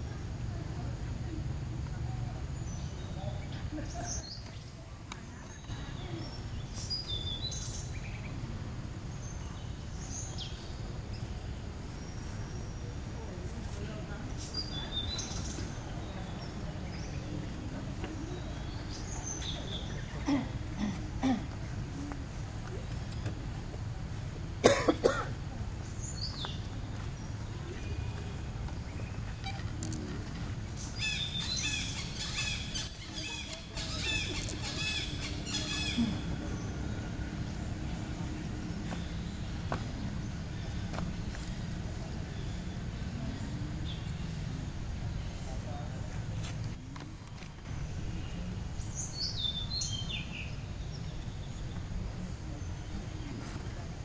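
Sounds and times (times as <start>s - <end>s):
high chirping calls: 30.6s - 42.9s.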